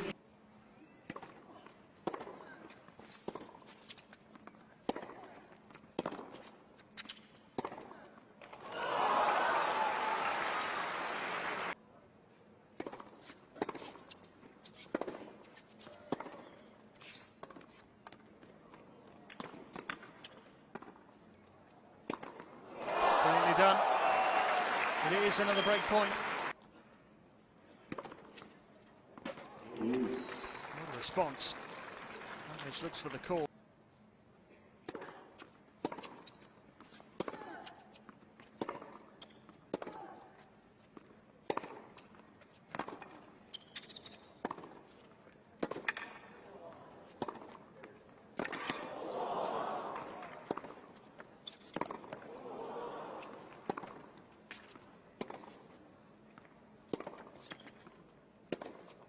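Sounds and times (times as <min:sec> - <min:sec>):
tennis ball bouncing: 0:02.0 - 0:02.4, 0:04.3 - 0:08.6, 0:19.3 - 0:21.1, 0:22.0 - 0:22.5, 0:35.8 - 0:40.0, 0:40.9 - 0:44.9, 0:45.6 - 0:46.2, 0:47.0 - 0:47.6, 0:48.3 - 0:49.0, 0:50.0 - 0:52.3, 0:53.2 - 0:55.6, 0:56.4 - 0:57.9, 0:58.5 - 0:59.0
racket hitting tennis ball: 0:35.8 - 0:36.3, 0:38.6 - 0:39.0, 0:41.4 - 0:42.0, 0:47.1 - 0:47.6, 0:51.6 - 0:52.2, 0:56.9 - 0:57.7, 0:58.5 - 0:59.0
racket striking tennis ball: 0:41.4 - 0:42.0, 0:56.9 - 0:57.3, 0:58.5 - 0:58.9.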